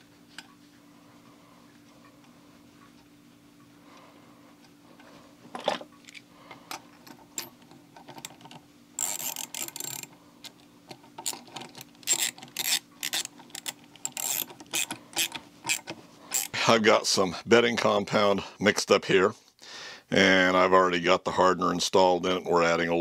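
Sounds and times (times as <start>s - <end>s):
socket ratchet clicking: 9.0s - 10.1s, 11.2s - 16.6s.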